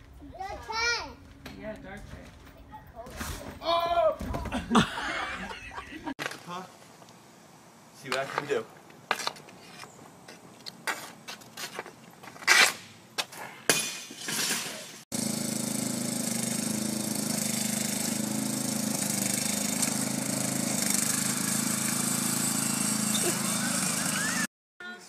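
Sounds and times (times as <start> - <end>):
riding lawn mower engine: 15.1 - 24.5.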